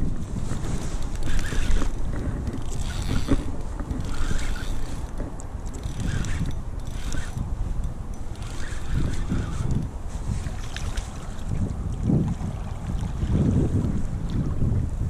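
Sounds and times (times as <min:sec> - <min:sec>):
wind buffeting microphone: 0:00.0 - 0:15.0
fishing reel winding: 0:01.0 - 0:09.9.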